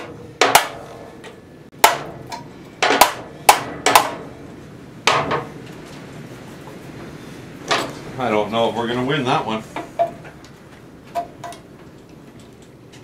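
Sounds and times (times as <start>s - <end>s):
hammer tapping on metal: 0.0s - 4.2s, 11.1s - 11.6s.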